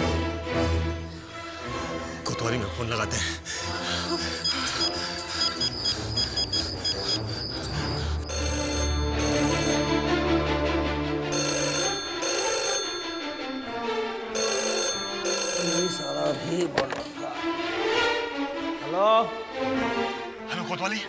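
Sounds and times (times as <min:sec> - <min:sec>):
background music: 0:00.0 - 0:21.0
desk telephone ringing: 0:04.3 - 0:10.4, 0:11.3 - 0:17.1.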